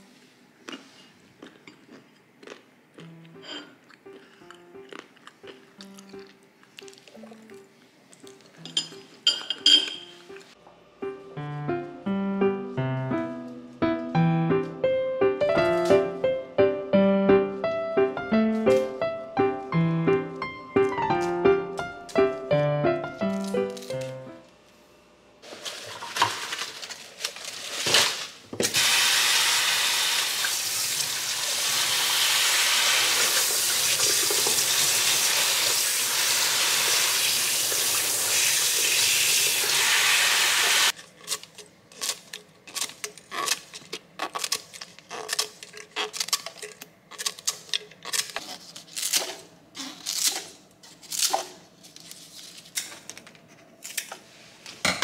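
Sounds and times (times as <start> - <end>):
kitchen things clattering: 8.5 - 10.5, 25.4 - 28.8
tap water running over leaves: 30.0 - 39.8.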